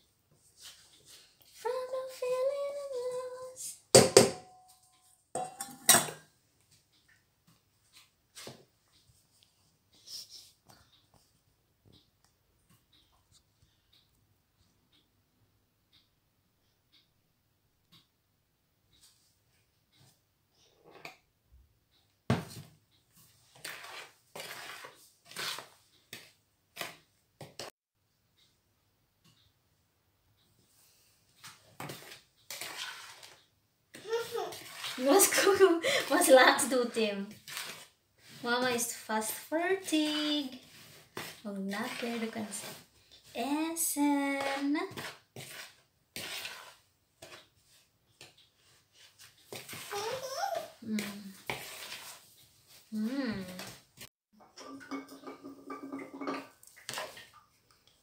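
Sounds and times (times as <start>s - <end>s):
spoon knocking against bowl: 4.0s - 4.7s, 5.4s - 6.2s
metal bowl clanking: 4.0s - 6.3s, 54.4s - 57.3s
spoon scraping dough in a bowl: 23.0s - 27.7s, 30.9s - 50.0s, 50.6s - 54.1s
woman humming: 52.9s - 53.6s.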